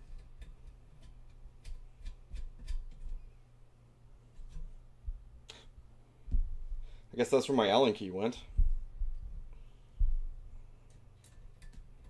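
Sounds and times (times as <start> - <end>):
low hum: 3.1 - 7.6, 8.3 - 12.0
metal clicks and taps: 10.8 - 12.0.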